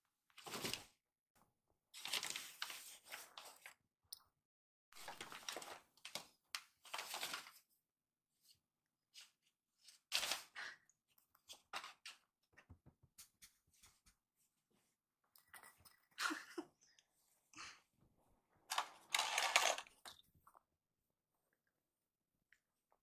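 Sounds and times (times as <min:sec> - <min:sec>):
paper bag crinkling: 0:18.7 - 0:19.9.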